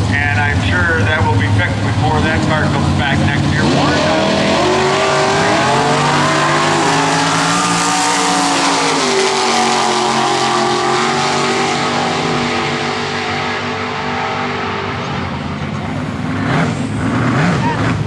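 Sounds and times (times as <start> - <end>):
drag racing engines at full throttle: 0.0 - 18.0.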